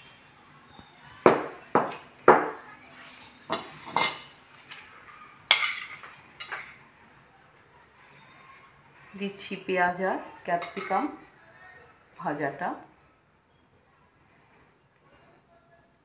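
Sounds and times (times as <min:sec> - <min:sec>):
metal spoon clinking against dishes: 0:01.8 - 0:02.2, 0:03.5 - 0:04.4, 0:05.5 - 0:06.8, 0:10.6 - 0:11.2.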